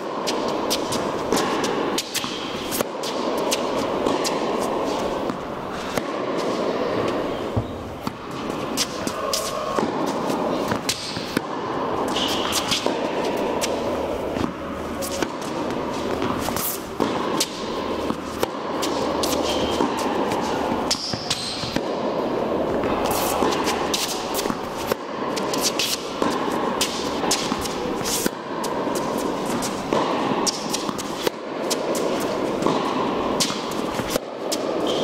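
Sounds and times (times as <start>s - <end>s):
racket hitting tennis ball: 0.0s - 35.0s
ball bounces: 7.0s - 22.1s, 29.2s - 34.3s.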